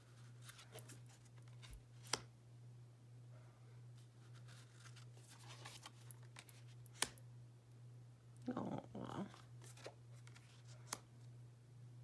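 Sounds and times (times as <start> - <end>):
cards sliding and rustling: 0.2 - 2.3, 4.2 - 7.2, 9.6 - 11.0.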